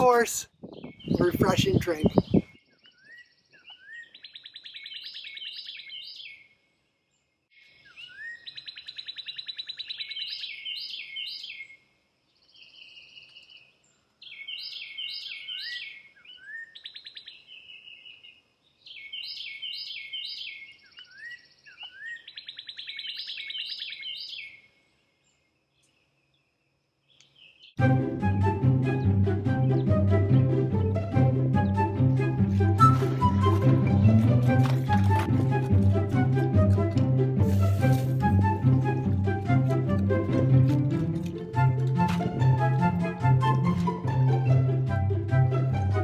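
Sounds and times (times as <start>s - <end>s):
songbird chirping and trilling: 0.0s - 35.3s.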